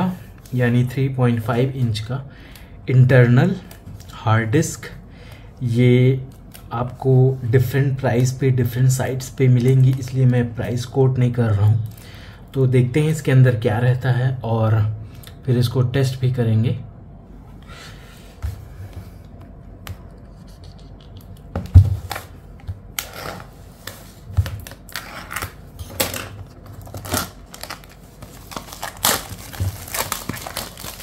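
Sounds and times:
plastic wrap crinkling and tearing: 24.4s - 31.0s.

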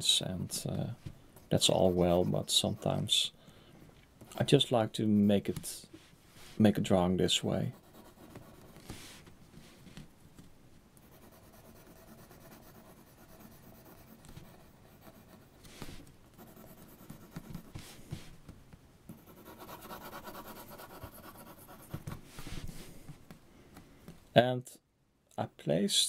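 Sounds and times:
pencil scratching on paper: 1.4s - 3.0s, 7.7s - 9.2s, 11.0s - 18.0s, 19.1s - 22.8s.

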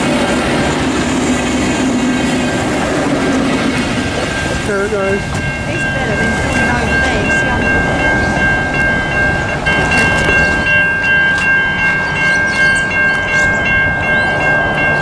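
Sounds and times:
diesel train rumble: 0.0s - 15.0s
train wheels on rails: 0.0s - 15.0s
level crossing bells ringing: 4.2s - 15.0s.

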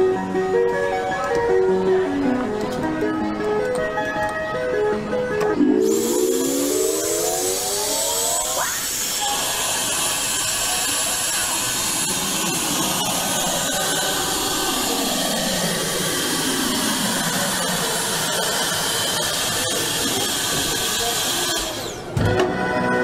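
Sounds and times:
faint tone sinking and rising: 5.5s - 9.1s
suction pump hissing: 5.7s - 22.2s.

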